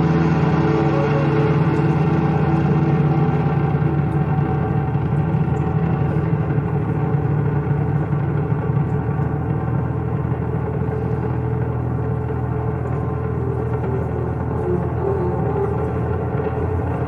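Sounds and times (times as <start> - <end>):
saxophone: 0.0 - 6.4, 12.1 - 17.0
double bass: 0.0 - 17.0
electric guitar: 0.0 - 17.0.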